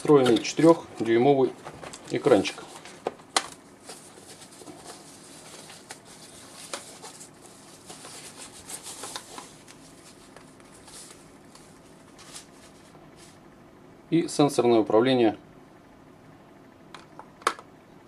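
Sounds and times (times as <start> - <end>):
cardboard rustling and scraping: 0.0 - 13.4.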